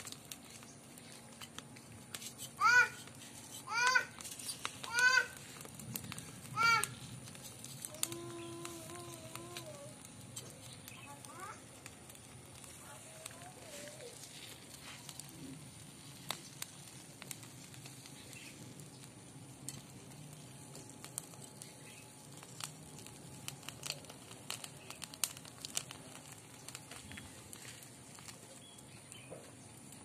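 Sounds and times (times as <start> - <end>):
wood fire crackling and hissing: 0.0 - 30.0
knife scraping charred hide: 0.4 - 5.6.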